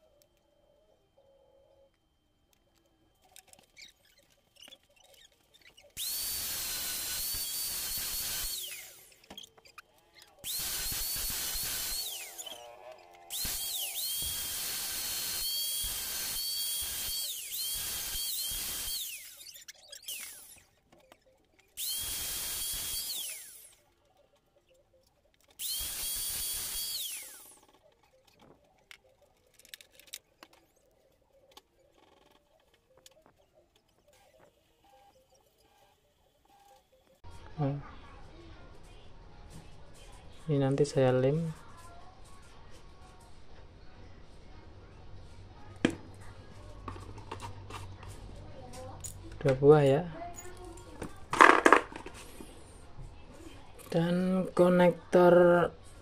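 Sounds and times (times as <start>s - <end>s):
power tool motor whine: 6.0s - 9.5s, 10.4s - 20.7s, 21.8s - 23.8s, 25.6s - 27.6s.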